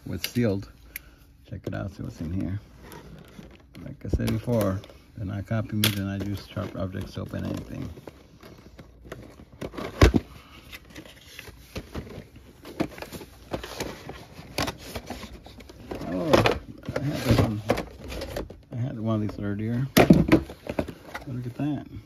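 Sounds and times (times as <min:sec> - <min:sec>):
cardboard scraping and rustling: 0:06.0 - 0:18.5.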